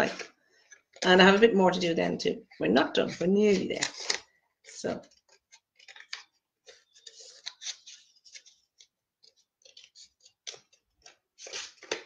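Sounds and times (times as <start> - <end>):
scissors snipping paper: 3.1 - 4.2.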